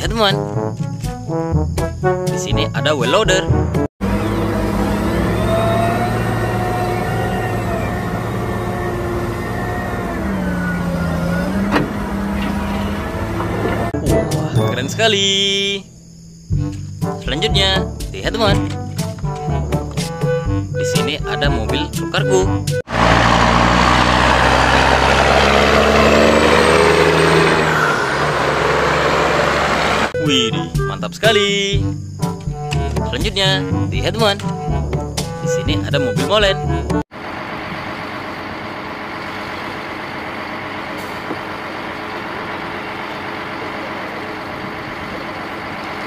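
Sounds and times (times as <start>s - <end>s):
road noise: 4.0s - 14.0s, 22.8s - 30.2s, 37.1s - 46.0s
wheel loader diesel engine: 4.0s - 15.4s, 22.8s - 30.2s, 37.1s - 46.0s.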